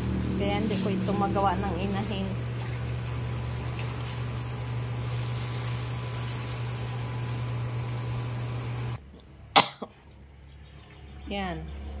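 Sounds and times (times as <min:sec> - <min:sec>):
hose water spraying on concrete: 0:00.0 - 0:09.0.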